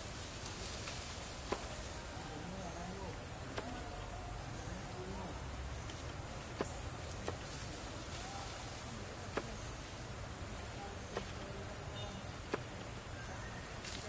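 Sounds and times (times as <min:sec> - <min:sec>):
insect chorus buzzing: 0:00.0 - 0:14.0
faint sharp clicks: 0:03.5 - 0:03.9.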